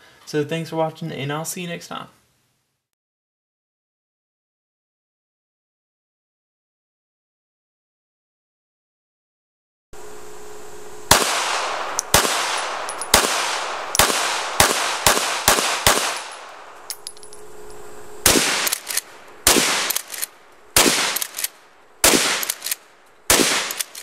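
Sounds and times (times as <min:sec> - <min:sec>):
gunshots with long echo: 0:11.1 - 0:16.9, 0:18.2 - 0:24.0.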